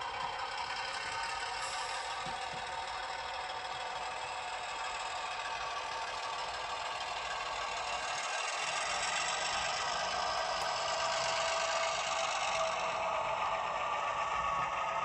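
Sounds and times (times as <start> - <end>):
model diesel engine through small speaker: 0.0 - 15.0.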